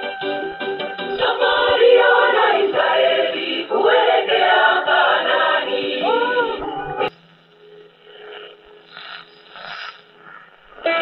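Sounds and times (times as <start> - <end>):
choir singing over radio loudspeaker: 0.0 - 7.1.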